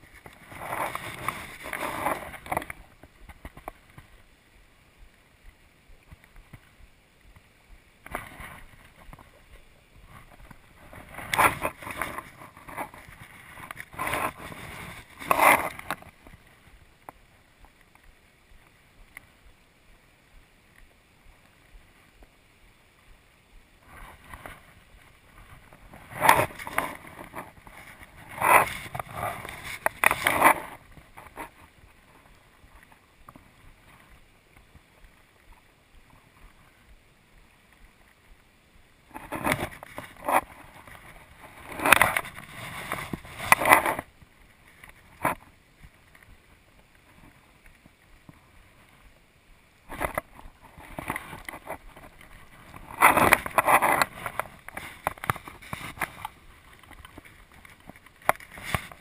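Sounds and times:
fly line rustling and scraping: 0.0s - 4.3s, 8.0s - 18.1s, 23.8s - 36.9s, 39.0s - 49.2s, 49.8s - 59.0s
river current rushing: 0.0s - 59.0s.

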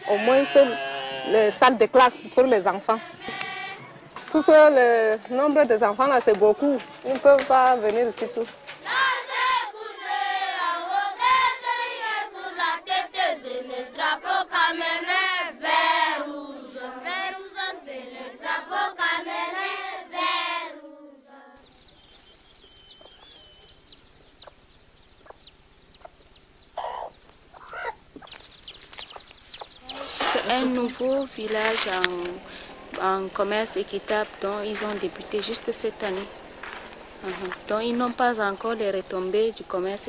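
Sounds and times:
birds chirping: 0.0s - 10.1s, 21.3s - 40.0s
group of voices singing: 2.0s - 4.3s, 8.8s - 21.8s.

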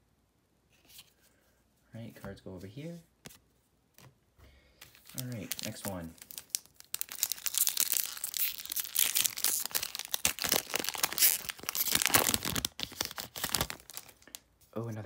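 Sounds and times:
foil wrapper crinkling and tearing: 4.9s - 14.4s.

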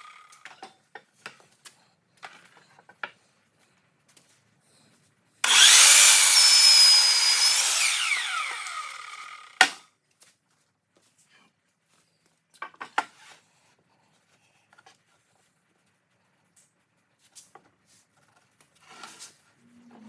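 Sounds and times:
saw blade spinning down whine: 5.4s - 9.7s
miter saw cutting wood: 5.4s - 9.8s.

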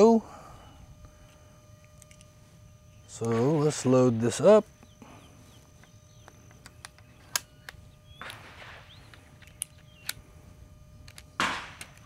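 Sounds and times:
air rifle loading clicks: 1.0s - 2.4s, 5.7s - 10.3s, 11.0s - 12.0s
faint bird chirps: 4.7s - 10.4s.

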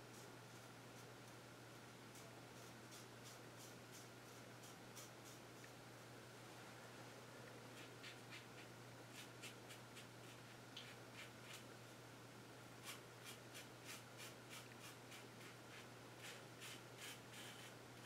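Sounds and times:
razor scratching stubble: 12.8s - 17.7s.

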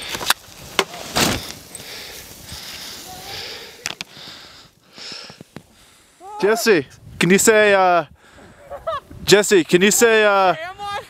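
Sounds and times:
skis hissing through snow: 0.0s - 6.4s.

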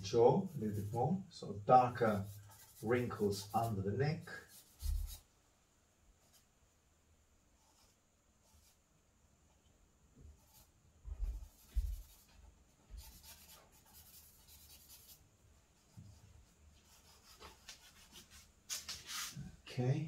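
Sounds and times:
charcoal scratching on paper: 0.4s - 1.0s, 1.9s - 5.2s, 10.4s - 12.3s, 12.9s - 15.2s, 15.8s - 19.4s.

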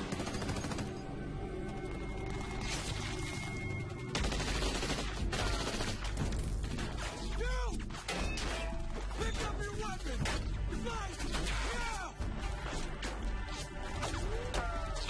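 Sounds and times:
rifle and shotgun fire: 4.1s - 6.8s.

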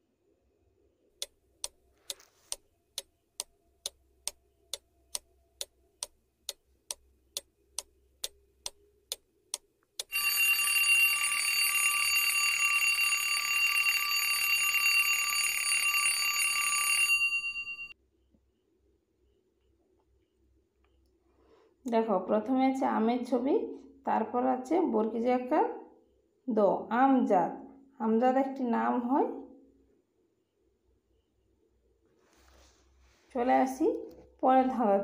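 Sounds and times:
clock ticking: 1.2s - 10.4s
alarm clock bell ringing: 10.0s - 18.0s.

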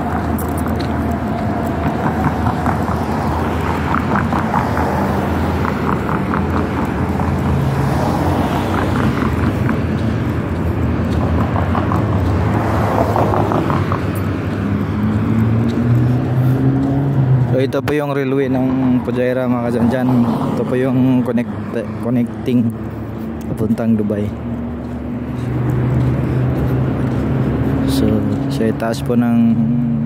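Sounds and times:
passing cars: 0.0s - 30.0s
vehicle engine and tyre noise: 0.0s - 30.0s
faint regular ticks: 22.0s - 23.8s.

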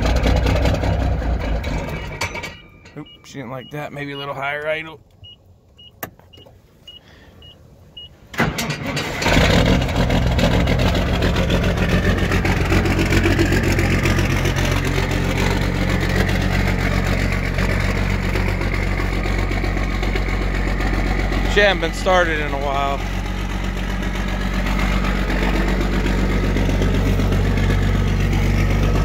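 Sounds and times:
diesel engine idling: 0.0s - 8.3s, 9.2s - 29.0s
short beeps: 2.5s - 8.1s.

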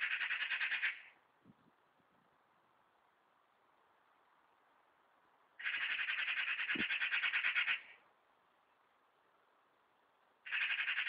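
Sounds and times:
magpie chattering: 0.0s - 1.1s, 5.6s - 8.0s, 10.4s - 11.0s.

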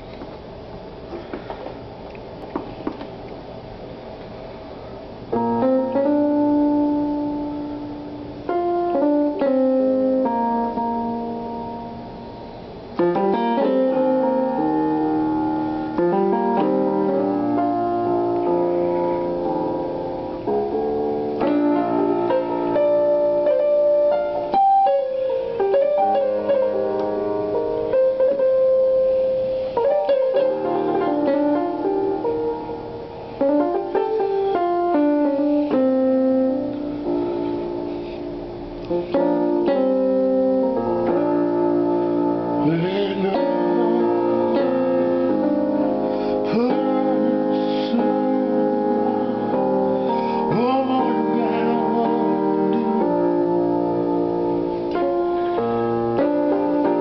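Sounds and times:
solo piano playing: 2.3s - 57.0s.

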